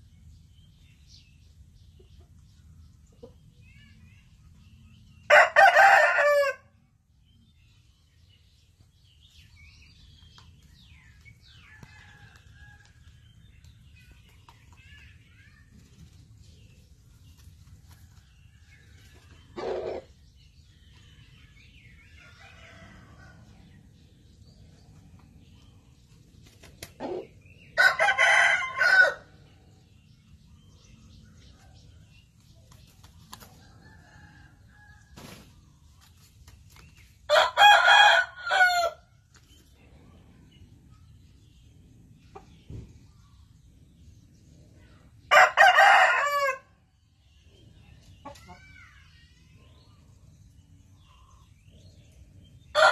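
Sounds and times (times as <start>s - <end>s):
rooster crowing: 27.8s - 29.3s, 45.3s - 46.6s.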